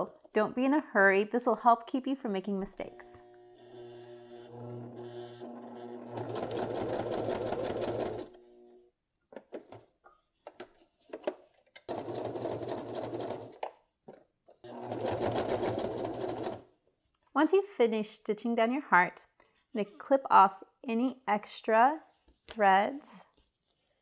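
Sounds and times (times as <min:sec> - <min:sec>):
electric sewing machine stitching: 0:02.7 - 0:08.9, 0:11.9 - 0:13.6, 0:14.6 - 0:16.7.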